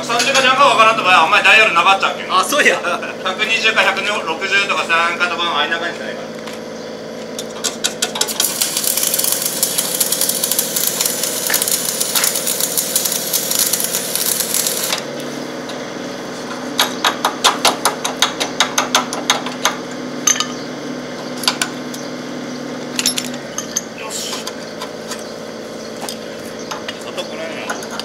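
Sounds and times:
welding generator humming: 0.0s - 28.0s
arc welding crackle: 8.1s - 15.3s.

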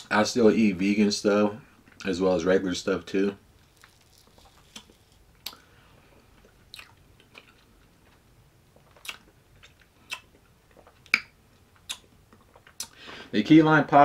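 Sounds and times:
mouth smacks and clicks: 6.7s - 7.6s, 8.8s - 13.0s.

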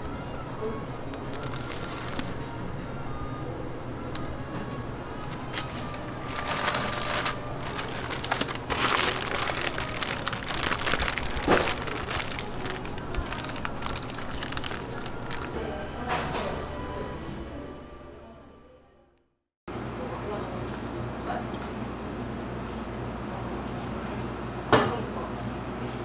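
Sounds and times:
paper wrapper crinkling: 1.0s - 2.4s, 5.2s - 15.6s.

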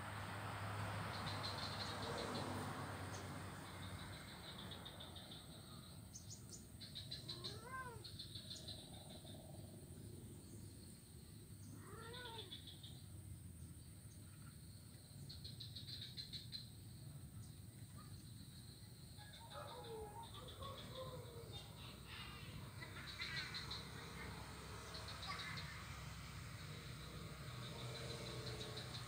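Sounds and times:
faint high chirping: 3.1s - 29.0s
cat meowing: 7.3s - 8.1s, 11.8s - 12.5s.

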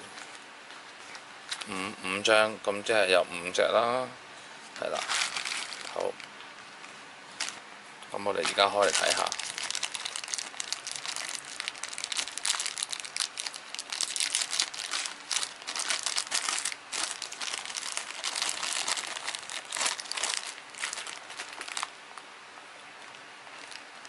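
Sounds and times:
plastic bags crinkling: 4.8s - 6.4s, 7.4s - 7.6s, 8.3s - 22.3s, 23.0s - 24.0s.

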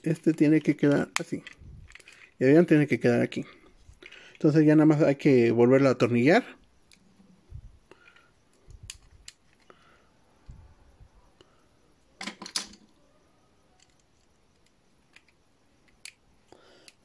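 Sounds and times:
plastic toy parts clicking: 0.2s - 2.4s, 8.0s - 9.7s, 13.8s - 16.2s, 16.8s - 17.0s.

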